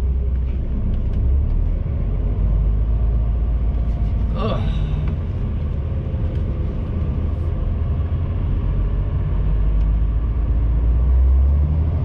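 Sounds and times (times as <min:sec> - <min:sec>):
lorry diesel engine droning: 0:00.0 - 0:12.0.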